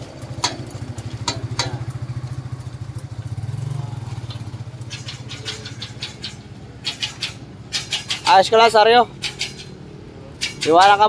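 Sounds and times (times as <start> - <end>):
vehicle engine idling: 0.0 - 11.0
sharp knocks: 0.4 - 2.0, 4.9 - 8.5, 9.1 - 9.8.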